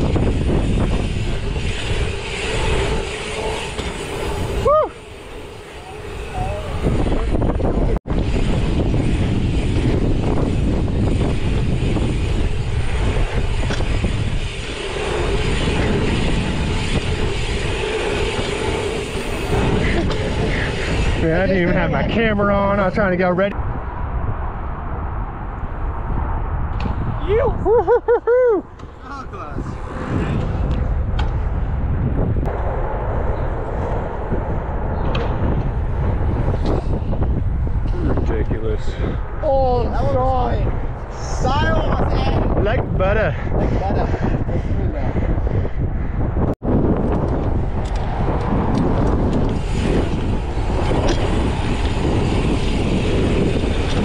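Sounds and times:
bike tyres rolling on asphalt: 0.0 - 54.0
wind buffeting microphone: 0.0 - 54.0
bike clicks: 47.0 - 54.0.

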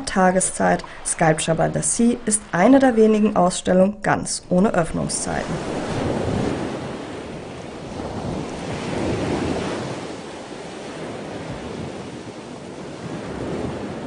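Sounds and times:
sea surf washing against shore: 0.0 - 14.0
wind buffeting microphone: 4.9 - 14.0.

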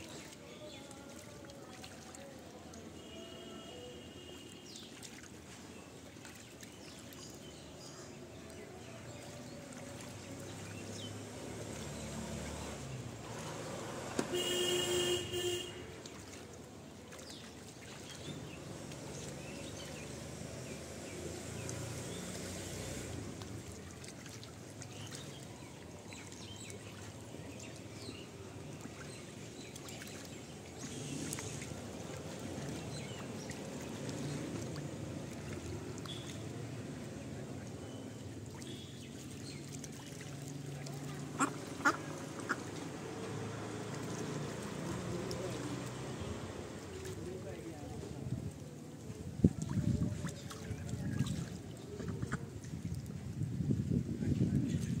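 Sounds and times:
bird splashing water: 0.0 - 53.4
outdoor background noise: 0.0 - 55.0
steady-pitched call or honk: 14.3 - 15.9.

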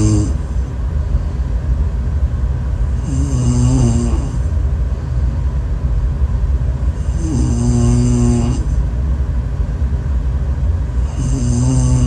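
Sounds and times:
woman snoring: 0.0 - 0.4, 3.0 - 4.4, 7.0 - 8.7, 11.0 - 12.0.

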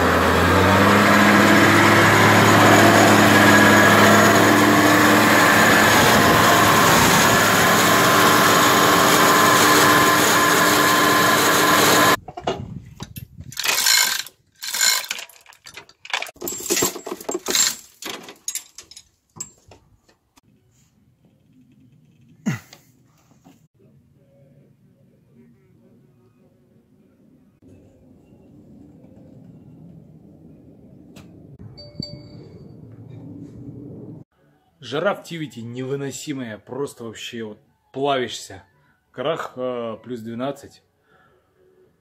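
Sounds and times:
car engine running: 0.0 - 12.2
workshop knocks and clatter: 12.2 - 13.2, 15.5 - 20.2.

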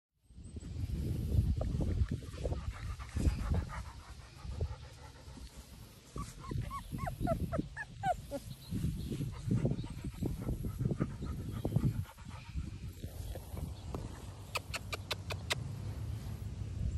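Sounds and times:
puppies whimpering and squeaking: 6.1 - 9.0.

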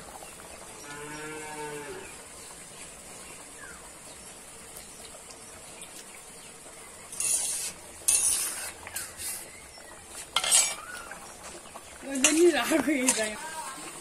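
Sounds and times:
cow mooing: 0.8 - 2.0.

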